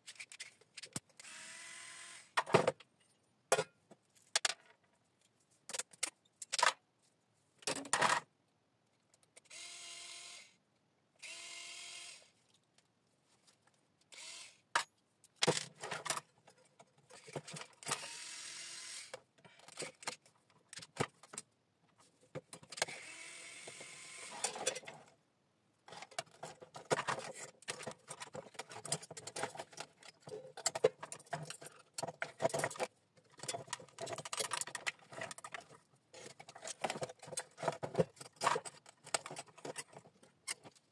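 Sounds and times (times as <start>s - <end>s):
metal parts clicking and rattling: 25.9s - 40.9s.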